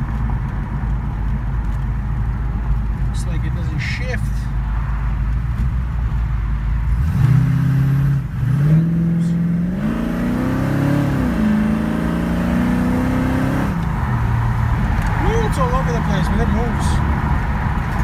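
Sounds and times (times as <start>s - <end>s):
car engine accelerating: 5.3s - 18.0s.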